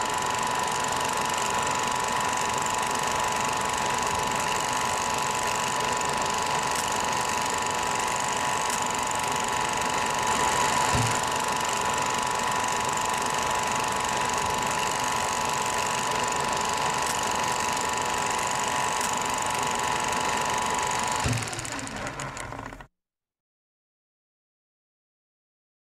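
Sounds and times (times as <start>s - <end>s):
machine clattering: 0.0s - 22.8s
high machine whine: 0.0s - 22.9s.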